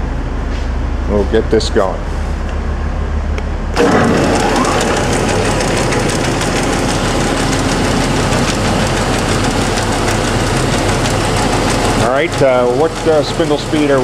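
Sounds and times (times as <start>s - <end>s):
lathe motor whirring: 3.7s - 14.0s.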